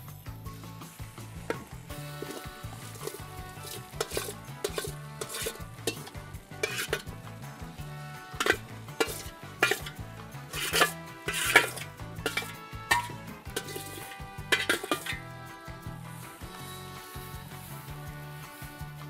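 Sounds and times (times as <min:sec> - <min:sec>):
spoon scraping metal bowl: 0:01.5 - 0:15.2.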